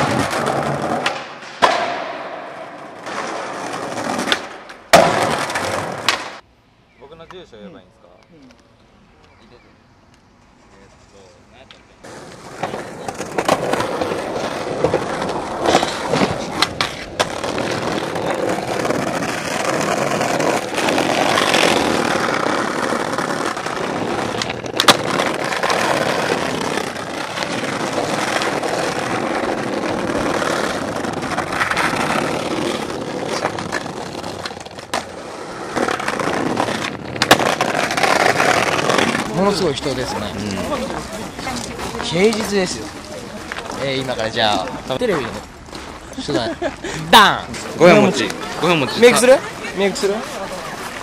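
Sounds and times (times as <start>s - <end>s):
skateboard clacking on ground: 0.0s - 6.4s, 11.6s - 45.9s
skateboard wheels rolling on bricks: 0.0s - 6.4s, 12.0s - 51.0s.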